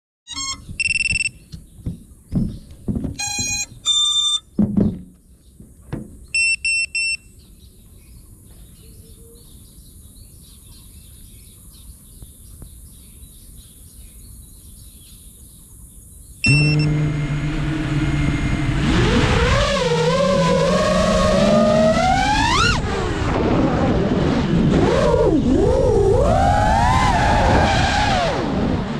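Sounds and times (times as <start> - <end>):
short high beeps: 0.3 - 1.4, 3.2 - 4.4, 6.4 - 7.3, 16.4 - 17.0
drone motors humming: 16.4 - 24.8.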